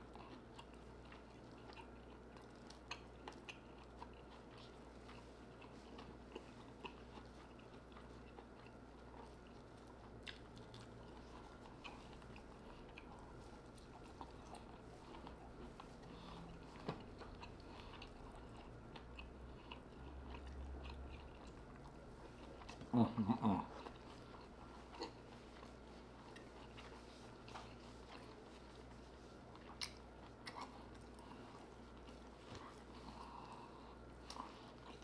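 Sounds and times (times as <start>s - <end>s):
person chewing: 0.0s - 35.0s
person humming mmm: 22.9s - 23.8s.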